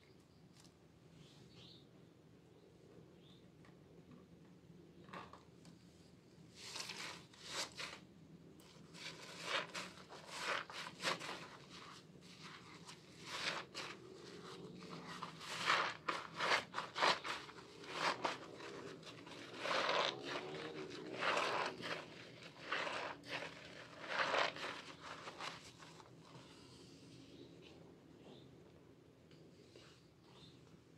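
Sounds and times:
soapy sponge squelching: 9.0s - 26.0s.

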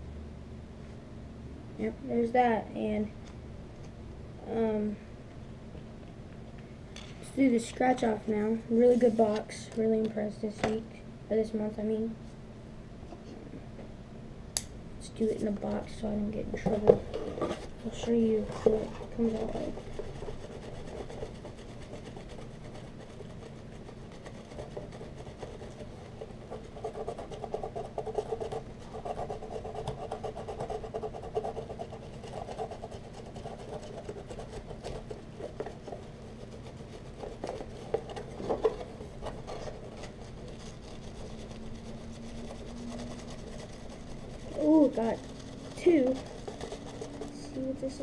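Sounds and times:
scratch card being scratched: 16.8s - 48.0s.

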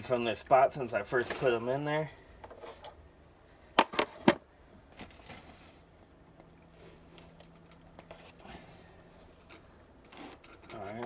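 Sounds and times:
rustling scrape: 4.9s - 5.9s.

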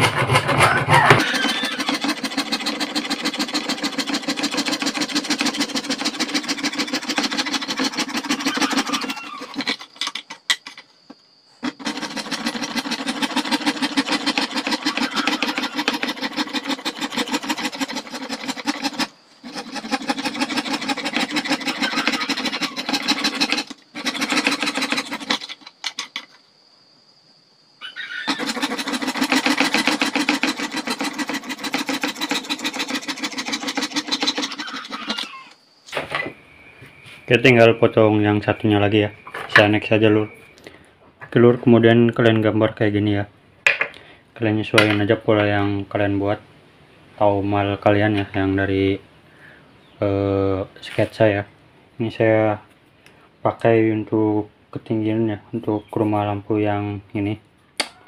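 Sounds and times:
saw cutting plastic sheet: 0.0s - 10.7s, 11.5s - 26.4s, 27.8s - 35.6s.

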